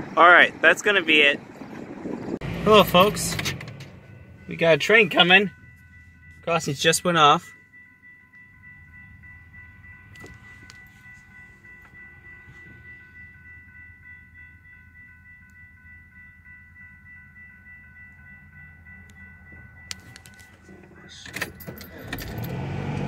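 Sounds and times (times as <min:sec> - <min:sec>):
low rumble: 0:01.4 - 0:06.8
railroad crossing bell ringing: 0:02.4 - 0:23.0.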